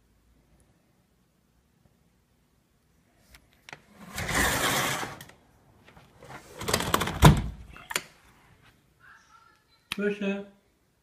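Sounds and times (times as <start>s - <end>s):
sliding glass door rolling: 3.9s - 5.3s.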